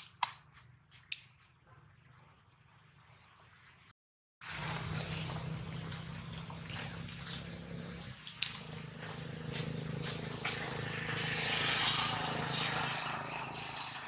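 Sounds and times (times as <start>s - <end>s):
low engine hum: 4.4s - 14.0s.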